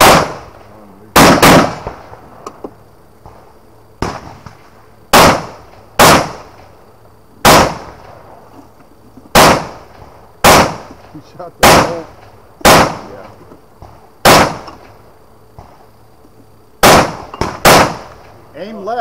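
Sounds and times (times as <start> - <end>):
rifle shots: 0.0 - 2.2, 4.0 - 6.7, 7.4 - 8.2, 9.3 - 11.0, 11.6 - 13.2, 14.2 - 14.9, 16.8 - 18.4.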